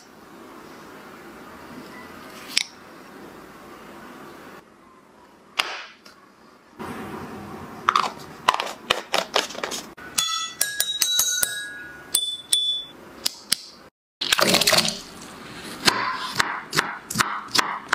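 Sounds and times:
glass clinks: 0:10.1 - 0:13.0.

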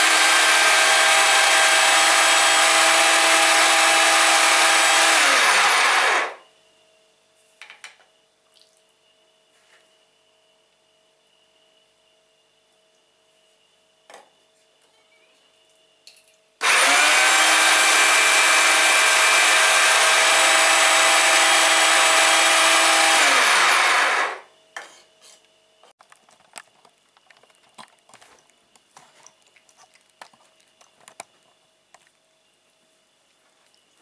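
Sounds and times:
electric meat grinder whining: 0:00.0 - 0:06.4, 0:16.6 - 0:24.5.

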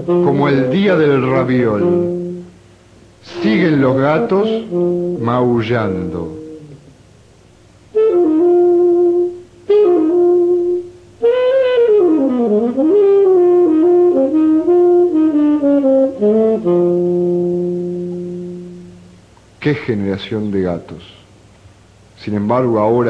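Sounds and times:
solo saxophone playing: 0:00.0 - 0:02.6, 0:03.2 - 0:06.9, 0:07.9 - 0:19.3.

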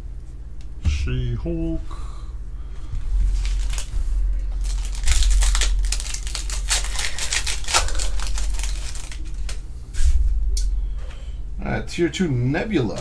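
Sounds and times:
cards rustling and clicking: 0:03.3 - 0:04.0, 0:04.6 - 0:09.6
wrapper crinkling: 0:03.3 - 0:09.6.

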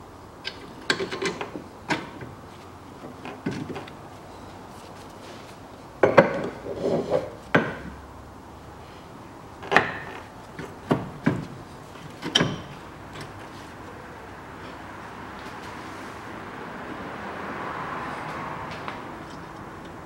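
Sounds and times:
metal tools knocking and clanking: 0:12.2 - 0:13.3.

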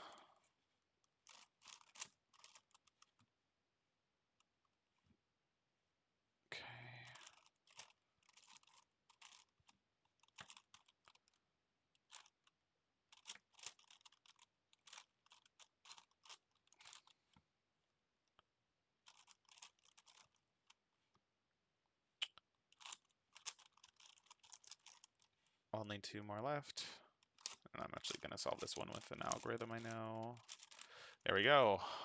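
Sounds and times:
puzzle cube plastic clicking: 0:19.0 - 0:20.8, 0:22.2 - 0:25.2.

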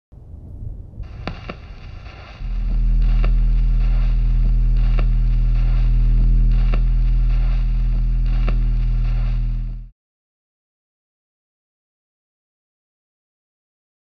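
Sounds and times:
low electrical hum: 0:00.2 - 0:09.9
crackling clicks: 0:01.0 - 0:09.9.

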